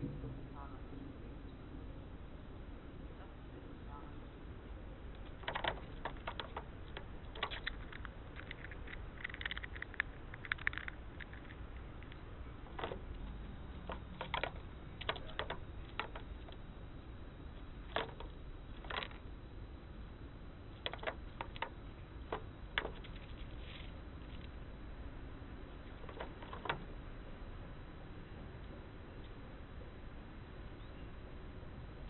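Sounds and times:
squirrel gnawing nut: 4.9s - 27.2s.

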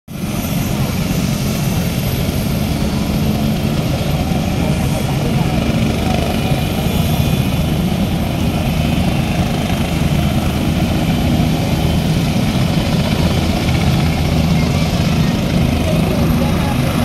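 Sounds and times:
helicopter engines and rotors droning: 0.1s - 17.0s.

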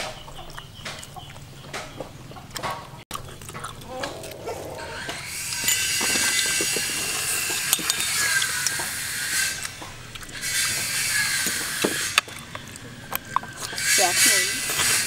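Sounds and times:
spoon scraping crab shell: 5.0s - 15.0s.

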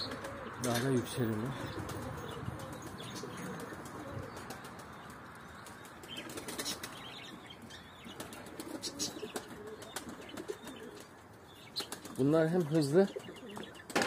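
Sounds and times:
pigeon wings flapping: 1.6s - 7.1s.

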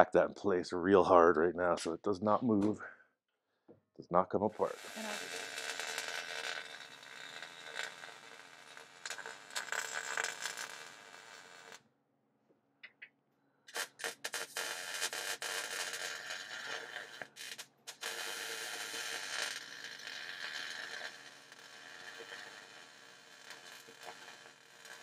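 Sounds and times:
arc welder crackling: 4.6s - 11.8s, 13.7s - 25.0s.

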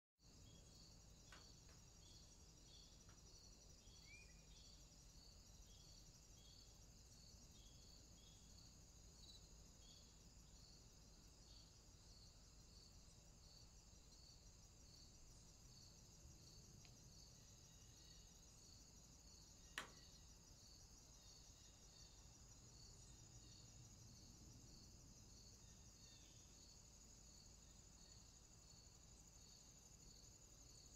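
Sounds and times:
insect chirping: 0.2s - 30.9s.

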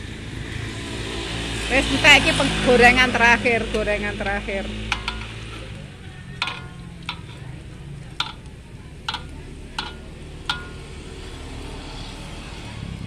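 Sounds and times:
metal ladle clinking on wok: 4.2s - 11.0s.

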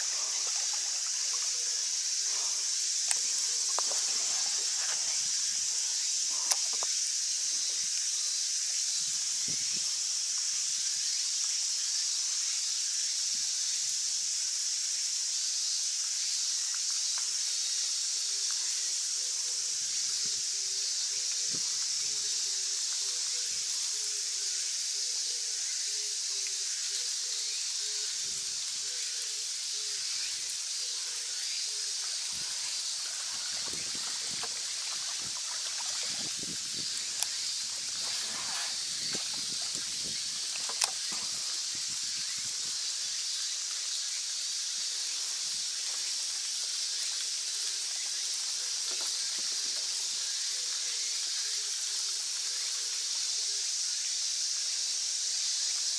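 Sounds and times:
cicadas droning: 0.0s - 55.9s
sharp clicks: 40.6s - 41.1s.

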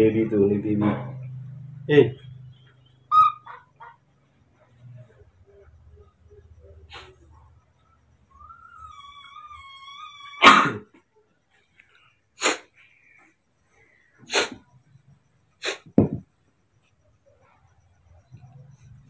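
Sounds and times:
baby monkey high call: 3.0s - 4.0s, 8.2s - 10.9s
sneeze-like snorts: 6.9s - 7.3s, 10.4s - 11.0s, 12.4s - 12.7s, 14.2s - 14.7s, 15.6s - 16.0s.

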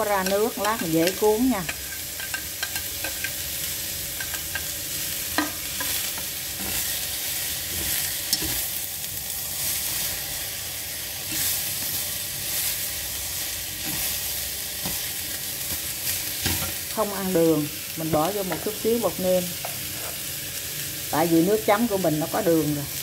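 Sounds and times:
vegetables sizzling in oil: 0.0s - 23.0s
chopsticks clicking against pan: 0.1s - 3.4s, 4.2s - 4.7s.

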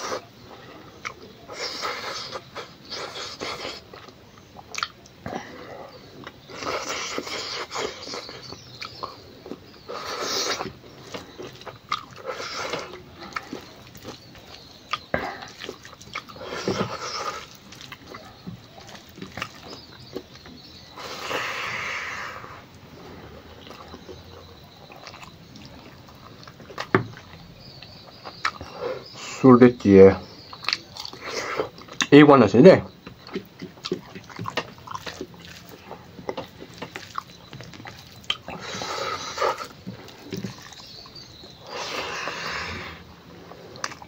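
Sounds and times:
person chewing food: 0.0s - 29.3s, 30.2s - 32.1s, 32.9s - 44.0s.

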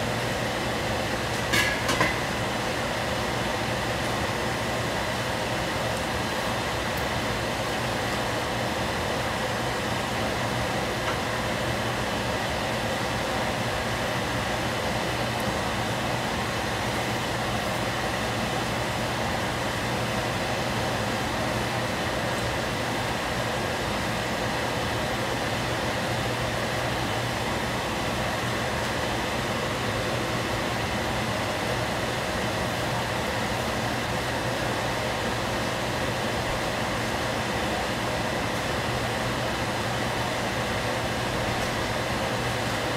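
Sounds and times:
gas stove rushing hum: 0.0s - 42.9s.

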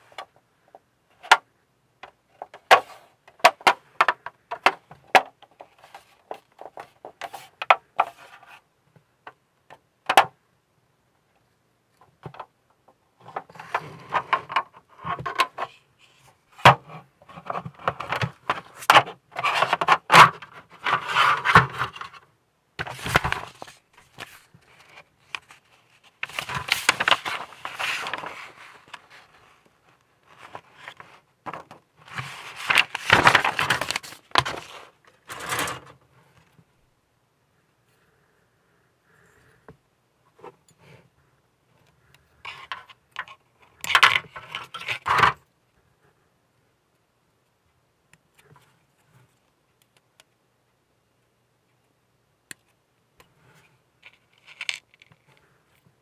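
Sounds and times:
plastic scraping and rubbing: 2.4s - 8.7s, 13.2s - 36.0s, 42.4s - 45.4s, 53.5s - 55.5s
plastic pieces clicking together: 54.0s - 55.2s.

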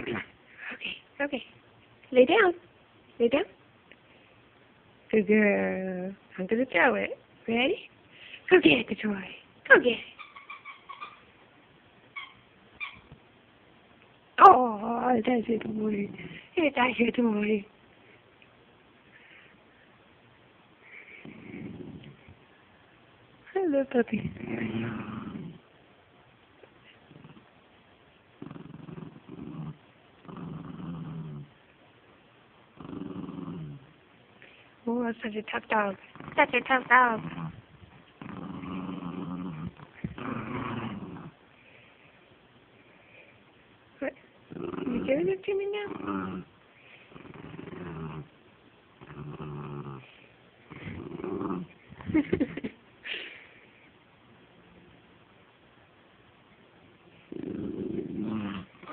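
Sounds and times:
small dog growling in play: 15.6s - 16.6s, 21.0s - 22.4s, 24.2s - 25.7s, 26.9s - 27.5s, 28.4s - 31.6s, 32.7s - 34.0s, 36.0s - 41.5s, 44.5s - 48.4s, 49.0s - 52.6s, 57.2s - 58.9s.

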